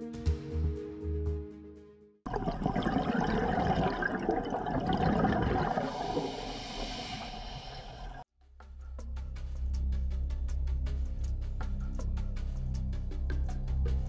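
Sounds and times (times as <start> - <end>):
background music: 0.0 - 2.2, 8.4 - 14.0
underwater rushing and bubbling water: 2.3 - 8.3.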